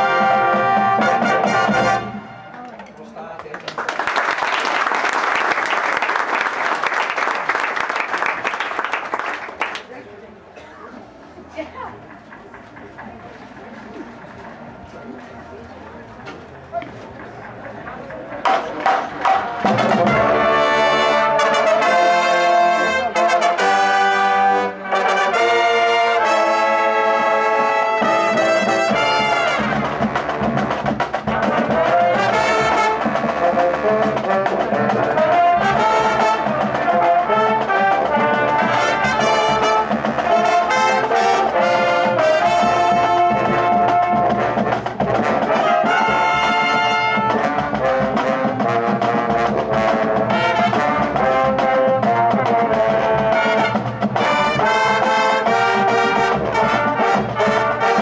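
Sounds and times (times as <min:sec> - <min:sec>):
marching band brass playing: 0:00.0 - 0:02.7, 0:13.0 - 0:58.0
drums: 0:00.0 - 0:03.1, 0:10.4 - 0:58.0.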